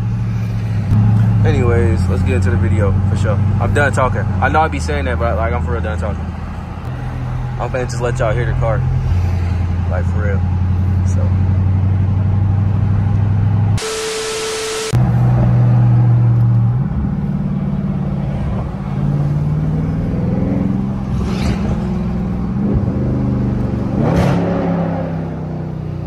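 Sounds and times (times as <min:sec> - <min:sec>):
car engine from inside cabin: 0:08.3 - 0:24.1
glitchy static sound effect: 0:13.8 - 0:15.0.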